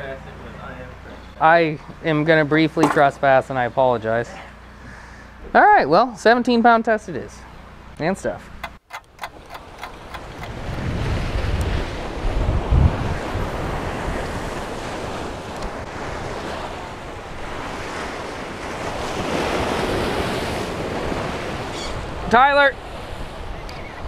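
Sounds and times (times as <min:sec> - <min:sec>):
wind buffeting microphone: 0:09.0 - 0:24.0.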